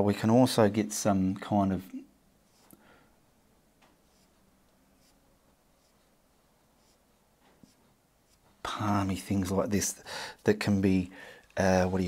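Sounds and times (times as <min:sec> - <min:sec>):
paintbrush scratching on canvas: 0:02.4 - 0:02.8, 0:04.0 - 0:08.6.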